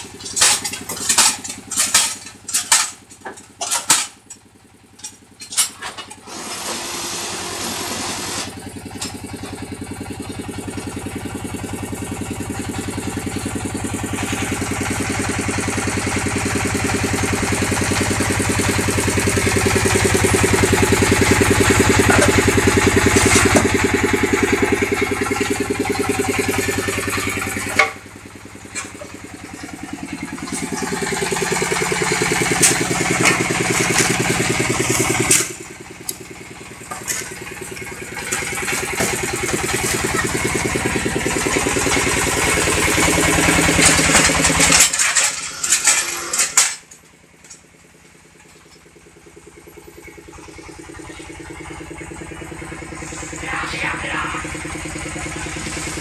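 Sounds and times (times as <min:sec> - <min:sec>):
pulsing vibrator motor hum: 0:16.6 - 0:46.5, 0:49.0 - 0:56.0.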